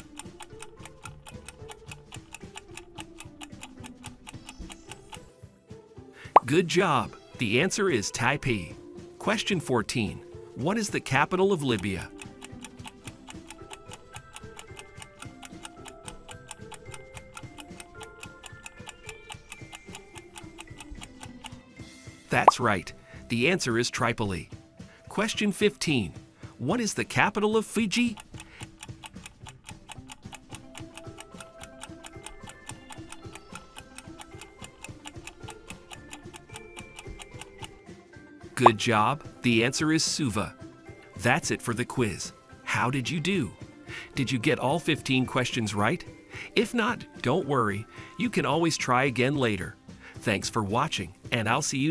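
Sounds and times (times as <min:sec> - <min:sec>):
timer ticking: 0:00.0 - 0:05.3, 0:10.7 - 0:21.6, 0:27.1 - 0:37.9, 0:38.6 - 0:38.9
quiet background tune: 0:00.0 - 0:51.9
soft background music: 0:00.0 - 0:51.9.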